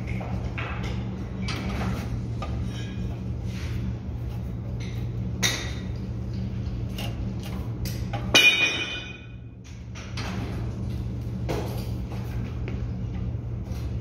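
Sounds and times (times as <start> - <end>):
high metallic ring: 8.3 - 9.4.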